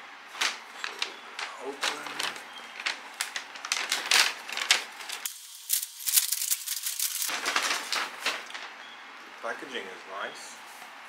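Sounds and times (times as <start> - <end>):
paper bag rustling: 0.3 - 8.8.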